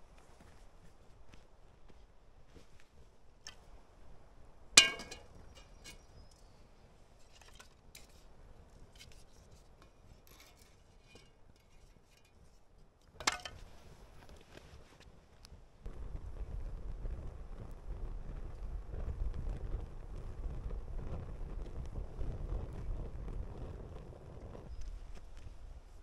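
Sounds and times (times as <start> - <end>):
metal grate clanking on grill: 4.8 - 6.0, 10.2 - 12.4, 13.2 - 13.6
coals poked through grate: 4.8 - 6.2, 7.2 - 14.4.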